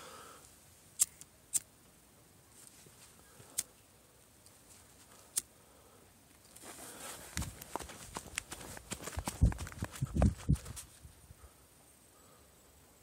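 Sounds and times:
footsteps crunching in snow: 6.6s - 11.0s.

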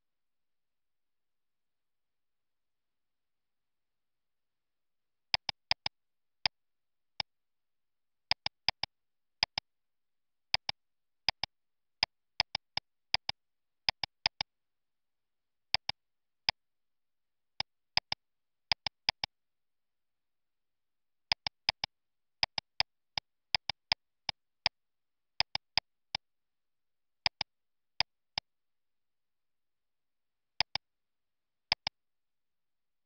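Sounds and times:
computer mouse clicking: 5.3s - 5.9s, 8.3s - 9.6s, 10.5s - 11.5s, 12.4s - 14.5s, 15.7s - 16.0s, 18.0s - 19.3s, 21.3s - 22.9s, 23.5s - 24.0s, 25.4s - 25.9s, 27.2s - 27.5s, 30.6s - 30.8s, 31.7s - 32.0s.

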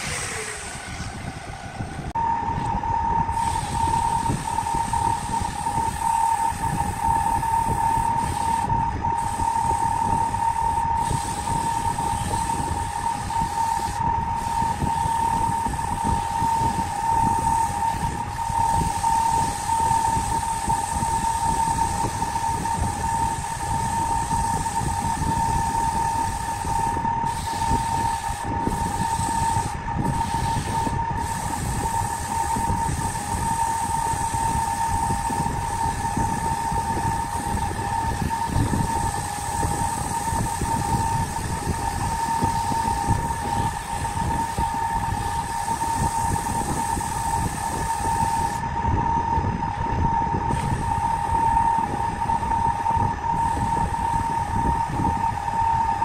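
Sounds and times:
wood lathe motor whining: 0.0s - 48.6s
sandpaper on spinning wood: 3.3s - 48.6s.

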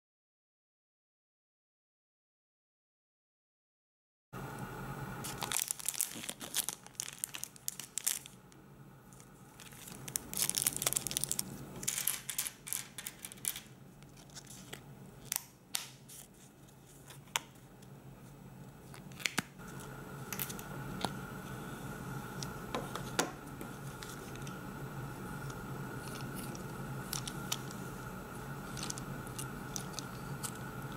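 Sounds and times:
plastic wrapper tearing and crinkling: 5.2s - 8.4s, 9.1s - 17.5s, 28.7s - 30.7s
small clicks and rustles of plastic parts: 5.3s - 17.9s.

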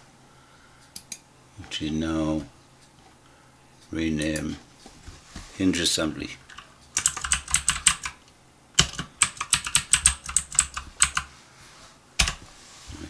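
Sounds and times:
typing on computer keyboard: 6.5s - 8.2s, 8.8s - 11.3s, 12.2s - 12.4s.

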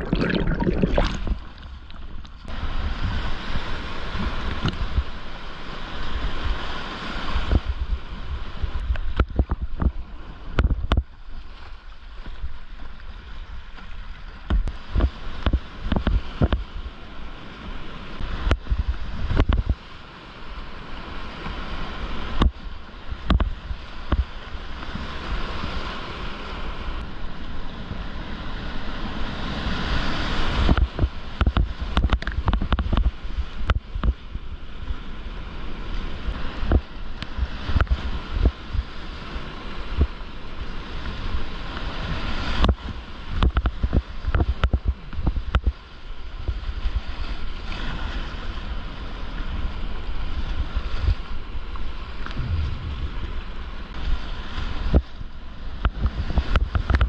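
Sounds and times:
low thumps on microphone: 52.3s - 54.3s.

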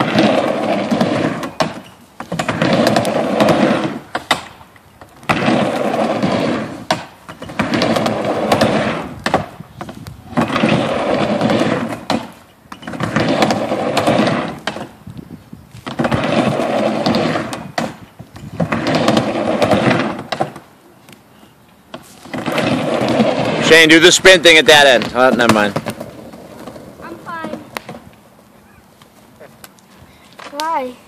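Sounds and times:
skateboard clacks: 0.0s - 15.0s, 15.8s - 20.7s, 22.0s - 28.2s
skateboard wheels rolling on wood: 0.0s - 31.0s.

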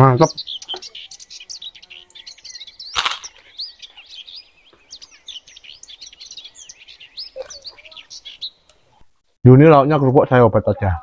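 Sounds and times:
small birds chirping: 0.0s - 11.0s
sharp crack: 3.0s - 3.4s.

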